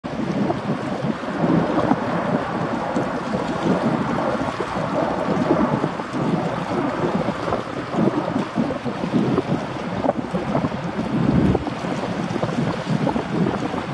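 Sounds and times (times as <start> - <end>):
hydrofoil ferry noise: 0.0 - 13.9
wind buffeting microphone: 0.0 - 13.9.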